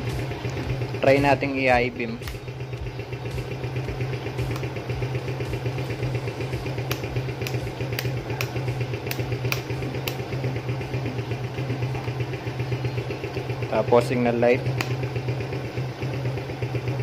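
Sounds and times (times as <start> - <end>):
motorcycle engine idling: 0.0 - 17.0
sharp clicks: 2.2 - 3.4, 4.0 - 4.9, 6.5 - 10.3, 14.7 - 15.0.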